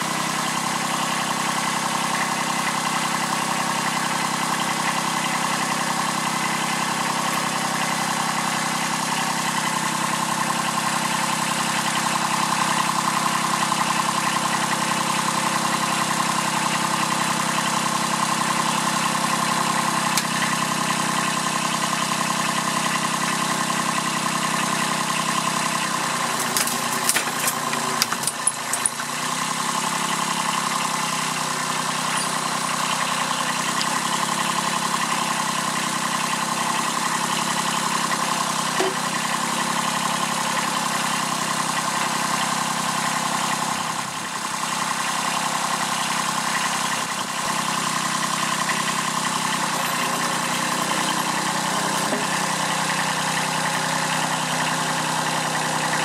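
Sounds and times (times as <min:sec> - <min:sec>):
diesel tractor engine running: 0:00.0 - 0:56.0.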